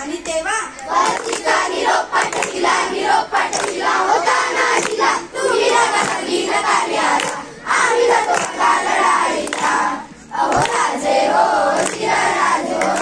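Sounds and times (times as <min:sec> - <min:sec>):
children singing together: 0:00.9 - 0:13.0
hand claps: 0:01.0 - 0:01.6, 0:02.2 - 0:02.8, 0:03.4 - 0:03.9, 0:04.7 - 0:06.3, 0:07.1 - 0:07.5, 0:08.2 - 0:09.9, 0:10.5 - 0:11.0, 0:11.7 - 0:13.0.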